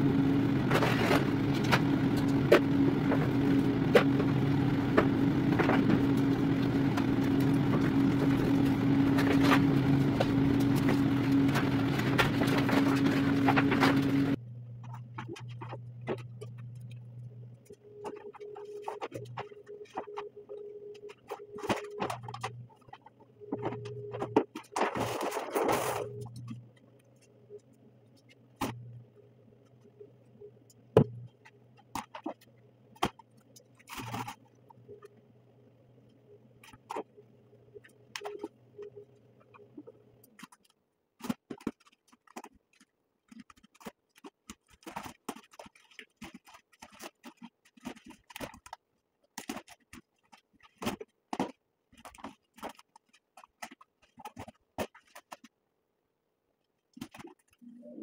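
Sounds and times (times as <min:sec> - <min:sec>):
low steady hum: 0:00.0 - 0:40.5
vinyl film crinkling and rustling: 0:00.7 - 0:28.8, 0:37.8 - 0:55.5.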